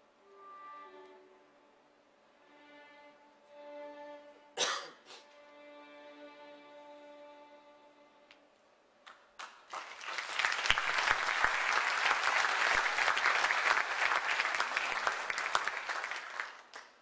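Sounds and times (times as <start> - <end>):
audience applause: 9.4 - 17.0.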